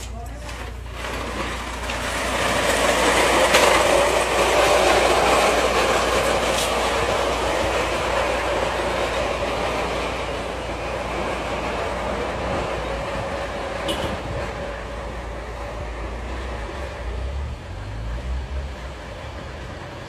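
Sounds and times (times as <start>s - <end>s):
sharp clacks: 0.0s - 8.4s
crates scraping down concrete: 0.0s - 20.0s.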